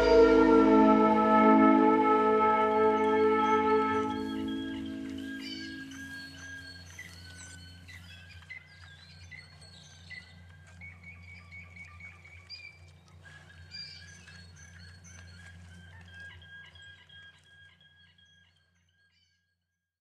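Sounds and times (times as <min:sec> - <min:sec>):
steady low hum: 0:00.0 - 0:06.1.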